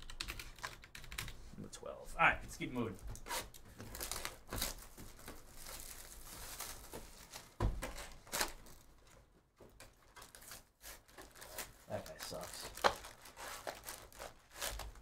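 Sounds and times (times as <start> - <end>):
foil packs crinkling: 3.4 - 9.2, 9.8 - 15.0.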